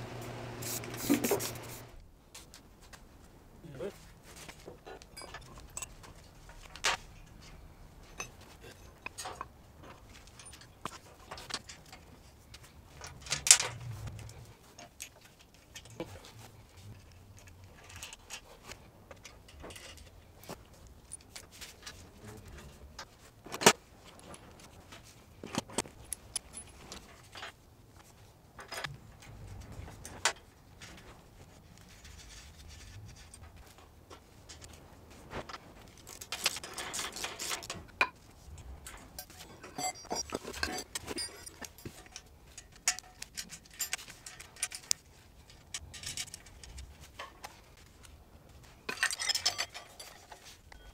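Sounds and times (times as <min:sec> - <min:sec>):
metal parts clinking: 0:05.0 - 0:12.0, 0:36.0 - 0:37.9, 0:38.8 - 0:47.2, 0:48.9 - 0:50.9.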